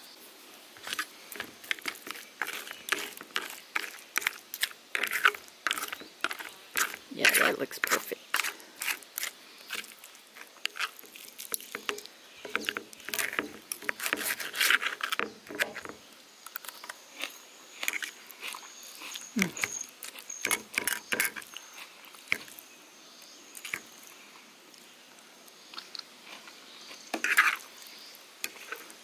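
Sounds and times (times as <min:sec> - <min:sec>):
fork scraping a plate: 0:00.8 - 0:15.9, 0:17.2 - 0:22.5, 0:27.2 - 0:27.7, 0:28.4 - 0:29.0.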